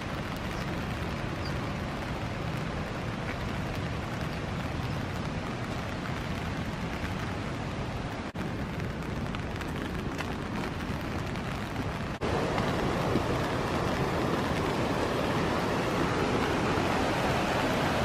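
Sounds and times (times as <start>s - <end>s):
rain hissing: 0.0s - 18.0s
river rapids rushing: 12.2s - 18.0s.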